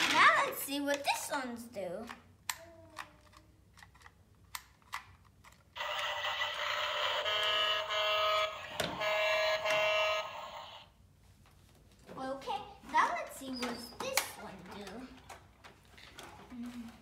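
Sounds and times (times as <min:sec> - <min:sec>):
toy handling clicks: 0:02.0 - 0:06.8
toy electronic horn honking: 0:05.8 - 0:10.8.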